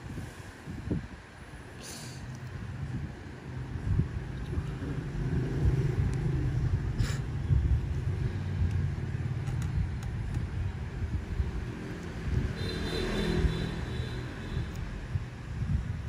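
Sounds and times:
low rumbling background noise: 0.0 - 12.6.

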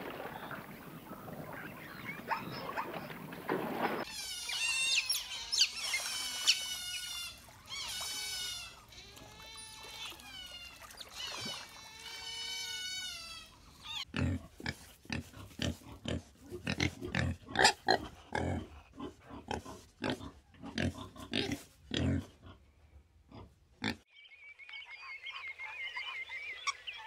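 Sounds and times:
otters chirping and squealing: 4.0 - 14.1
pigs grunting: 13.9 - 22.6.

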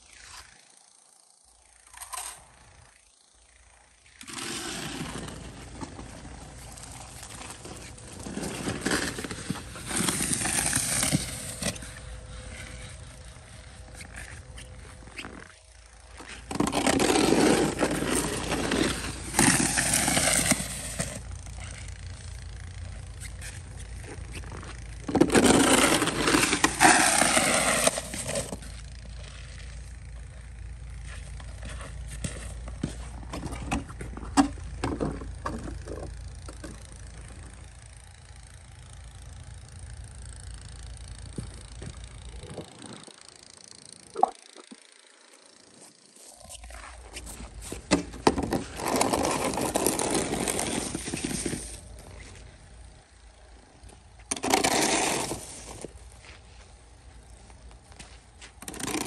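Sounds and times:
snow shovel scraping pavement: 4.2 - 21.9, 23.2 - 29.8, 30.9 - 36.1, 45.7 - 52.6, 54.2 - 56.8, 57.9 - 59.0.

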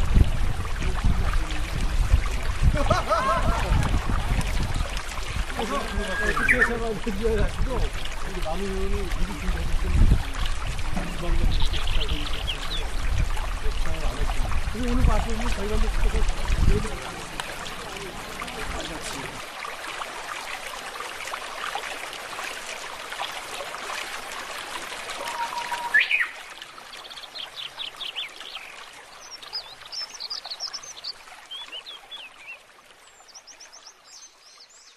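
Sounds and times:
birds chirping: 4.4 - 9.6, 10.6 - 19.4, 25.2 - 34.9.

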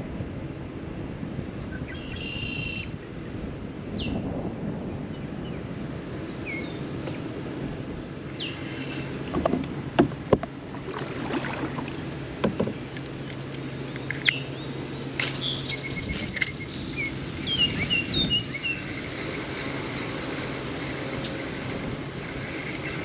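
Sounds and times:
birds chirping: 8.3 - 9.6, 10.5 - 21.6.

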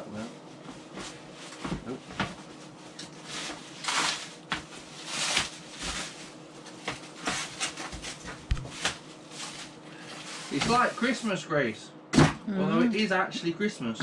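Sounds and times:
plastic wrap and cardboard rustling: 0.6 - 11.3.

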